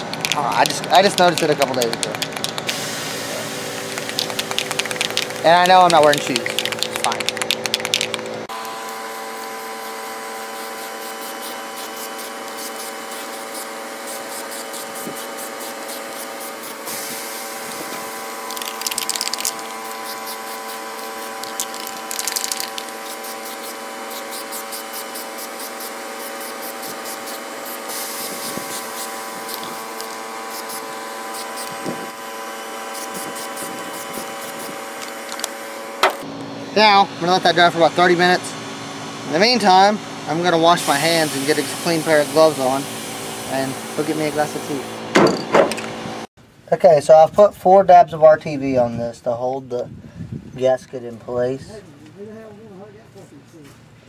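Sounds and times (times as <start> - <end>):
spray paint can hissing: 0.0 - 8.5, 9.2 - 32.1, 32.8 - 36.2, 40.8 - 44.8
steady hum: 0.0 - 46.3.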